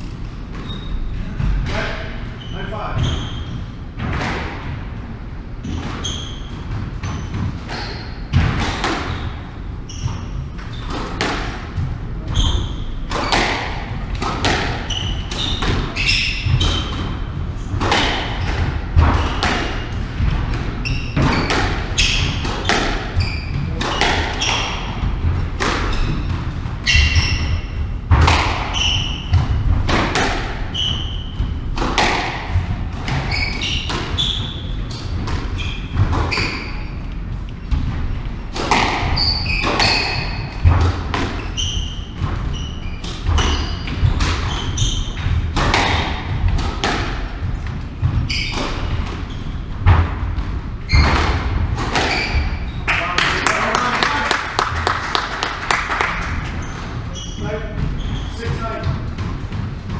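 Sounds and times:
shoes squeaking on wooden floor: 0.4s - 3.9s, 5.6s - 46.6s, 47.4s - 55.4s, 56.3s - 59.9s
squash ball cracking off rackets: 17.7s - 23.2s, 28.1s - 34.2s, 38.5s - 41.4s, 45.4s - 47.4s.

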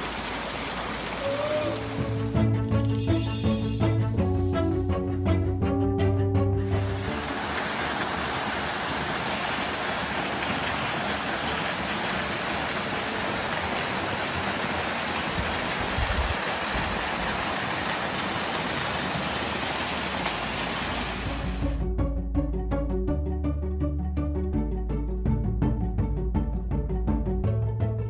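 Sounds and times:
waterfall rushing: 0.0s - 2.2s, 6.6s - 21.7s.

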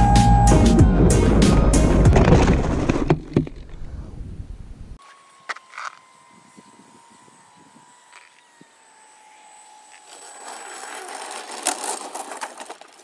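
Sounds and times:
model plane crashing on gravel: 2.0s - 3.8s, 9.9s - 13.0s
electric motor whining: 5.0s - 12.8s.

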